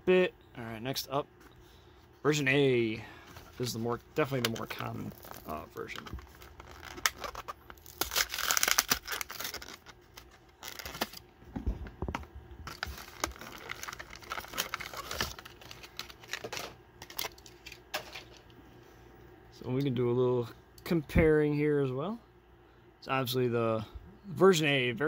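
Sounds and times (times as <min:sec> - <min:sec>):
plastic blister crinkling: 0:03.3 - 0:18.5
cardboard tearing: 0:05.0 - 0:11.2, 0:12.7 - 0:16.4.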